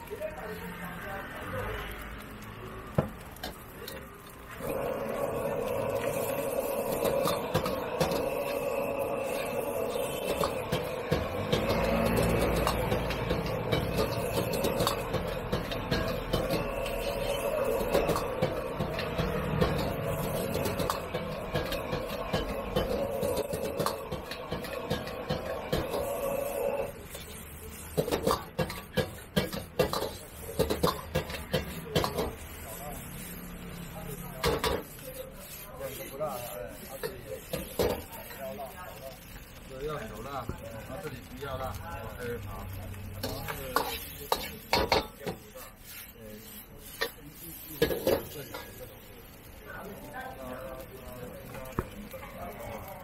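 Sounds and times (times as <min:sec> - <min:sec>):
gas burner humming: 0:00.0 - 0:53.0
steady rush of frying: 0:00.0 - 0:53.0
metal ladle scraping wok: 0:02.9 - 0:49.5.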